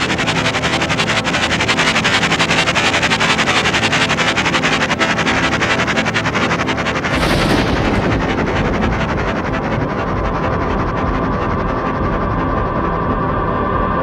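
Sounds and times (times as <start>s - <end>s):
dense rushing noise with crackle: 4.1s - 14.0s
sustained music tones: 5.2s - 13.8s.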